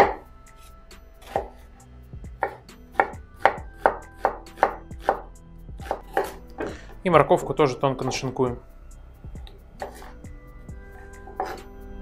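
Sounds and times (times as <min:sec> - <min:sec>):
knife chopping on wooden board: 0:00.0 - 0:00.3, 0:01.2 - 0:01.6, 0:02.3 - 0:06.8, 0:09.8 - 0:10.2, 0:11.3 - 0:11.7.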